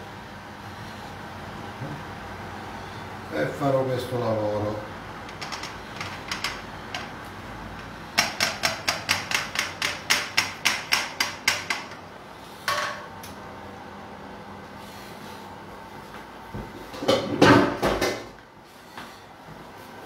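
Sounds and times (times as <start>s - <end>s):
sharp knocks on a frying pan: 8.2s - 11.9s.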